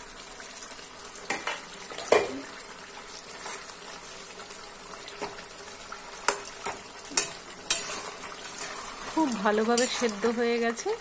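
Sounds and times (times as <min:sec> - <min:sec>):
curry bubbling in a pan: 0:00.0 - 0:11.0
metal spatula clacking on pan: 0:06.2 - 0:08.0.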